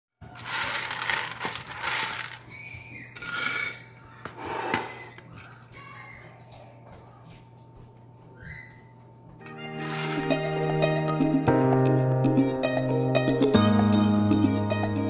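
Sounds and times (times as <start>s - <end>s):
peanuts rattling on metal pan: 0.2s - 2.6s.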